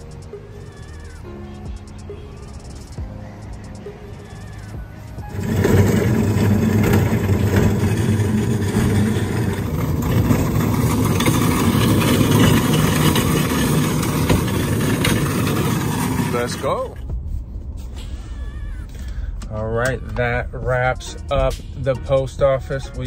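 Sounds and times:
cart wheels rattling on concrete: 0:04.4 - 0:17.0.

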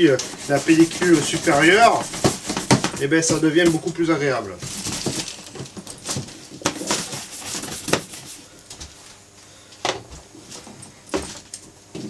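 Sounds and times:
brush sweeping over leather: 0:00.1 - 0:02.2.

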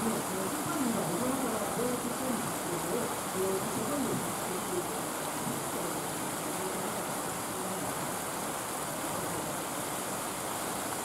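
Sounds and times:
faint wavering voices: 0:00.0 - 0:08.3
steady rushing noise: 0:00.0 - 0:11.0.

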